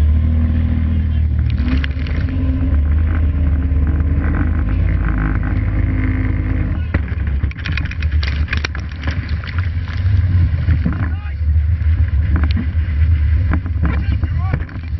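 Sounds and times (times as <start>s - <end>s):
boat engine running hard: 0.0s - 14.9s
heavy wind: 0.0s - 14.9s
crashing spray and splashing: 1.4s - 2.6s, 7.0s - 11.0s.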